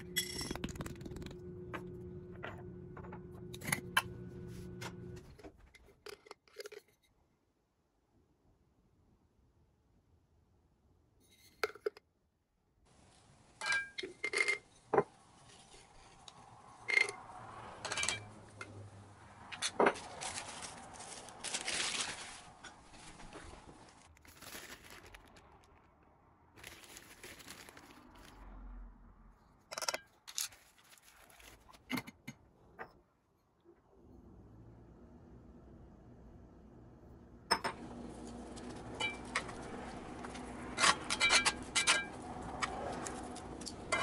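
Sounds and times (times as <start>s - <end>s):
rustling and tearing: 20.0s - 26.0s, 26.6s - 28.4s, 30.3s - 31.8s.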